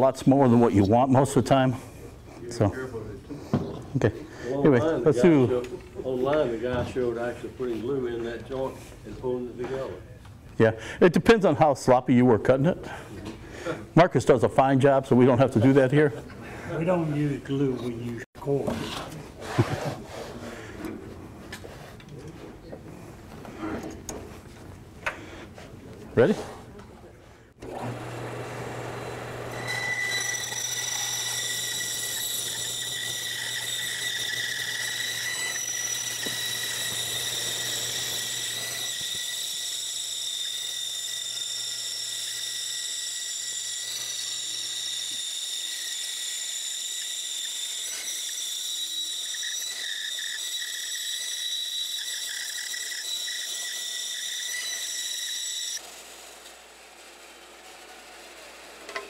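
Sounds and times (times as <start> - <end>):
sped-up bandsaw high whine: 27.7 - 59.0.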